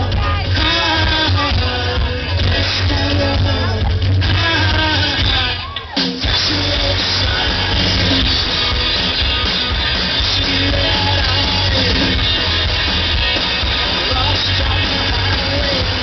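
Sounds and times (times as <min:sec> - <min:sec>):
live rock band through pa: 0:00.0 - 0:16.0.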